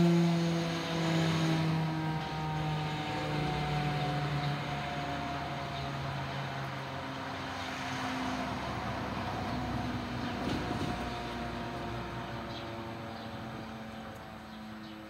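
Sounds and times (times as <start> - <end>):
siren winding down: 0.0 - 6.9
traffic noise: 0.0 - 15.0.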